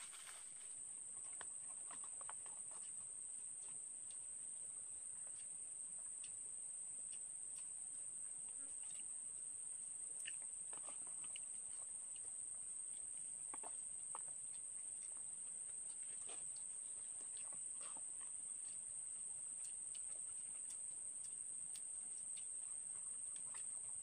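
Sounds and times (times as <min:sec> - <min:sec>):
high-pitched insect drone: 0:00.0 - 0:00.5
paper food wrappers rustling: 0:00.0 - 0:00.6.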